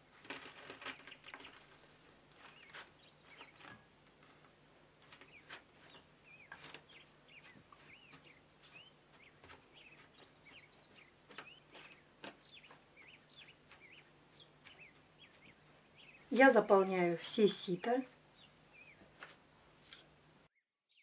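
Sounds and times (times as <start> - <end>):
faint high bird chirps: 5.2 - 14.1.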